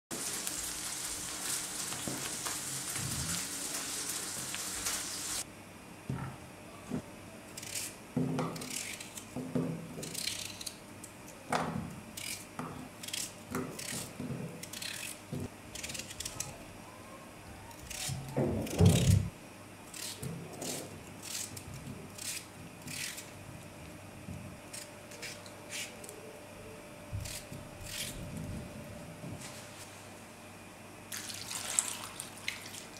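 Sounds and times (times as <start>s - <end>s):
steady hiss: 0.1s - 5.4s
knife cutting potato: 7.6s - 10.8s, 12.1s - 16.6s, 17.8s - 19.3s, 19.9s - 23.3s, 24.7s - 26.2s, 27.2s - 28.3s.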